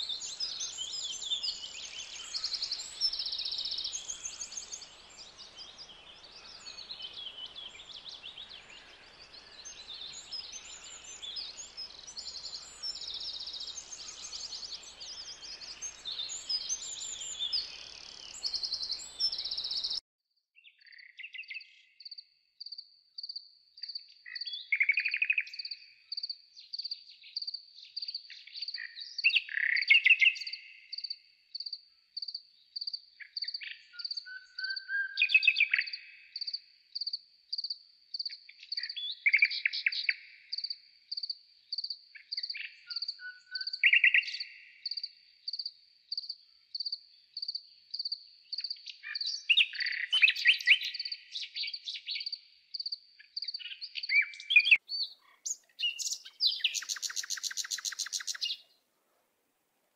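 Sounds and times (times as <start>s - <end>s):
garden birds calling and singing: 0.0s - 20.0s, 20.6s - 58.9s
rapid bird trill: 54.7s - 58.6s.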